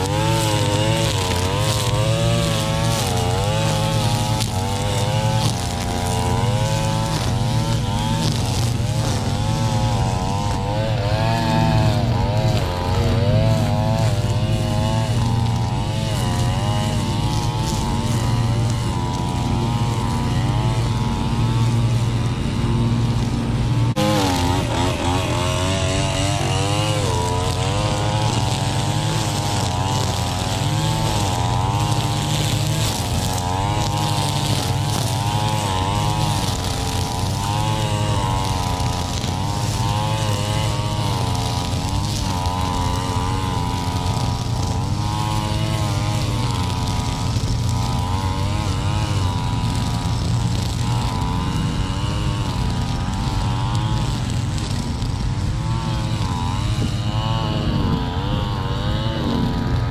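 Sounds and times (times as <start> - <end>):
string trimmer cutting grass: 0.0 - 59.9.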